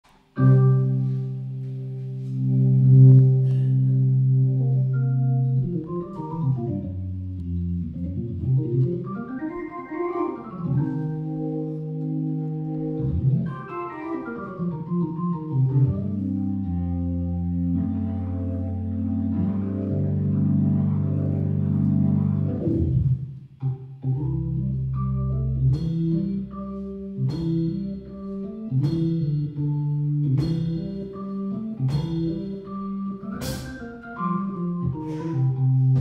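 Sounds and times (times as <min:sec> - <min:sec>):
electric organ chords: 0:00.3 - 0:36.0
organ sweeping runs: 0:00.4 - 0:23.3.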